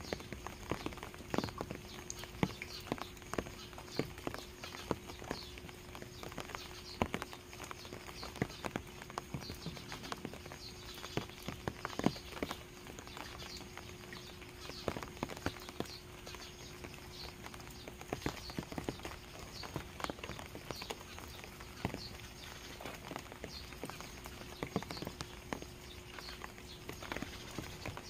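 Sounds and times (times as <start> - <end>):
faint bird chirping: 0.0 - 28.0
rain dripping from roof: 0.0 - 28.0.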